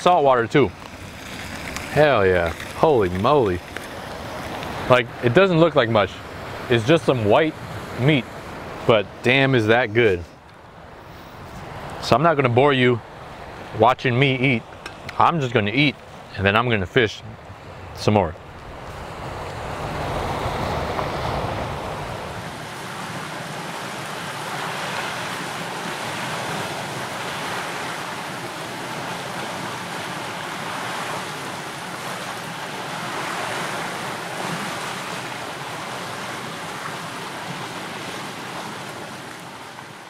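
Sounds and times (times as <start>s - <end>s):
surf washing against rocks: 0.0s - 40.0s
wind rumble on microphone: 17.2s - 35.4s.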